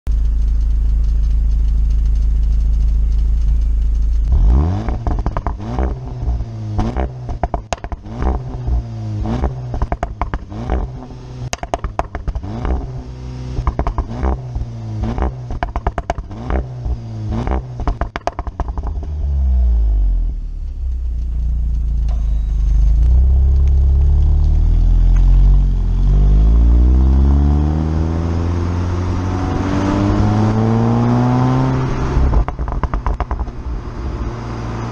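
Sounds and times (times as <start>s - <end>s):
exhaust pops and crackles: 0.1s - 19.4s, 20.2s - 26.1s, 31.6s - 33.9s
car engine revving: 0.2s - 34.9s
car accelerating away: 4.2s - 20.5s, 21.1s - 34.9s.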